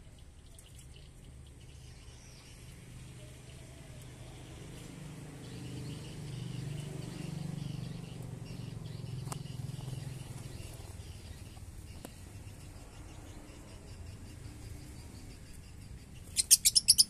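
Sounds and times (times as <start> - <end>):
high bird chirps: 5.5 - 17.0.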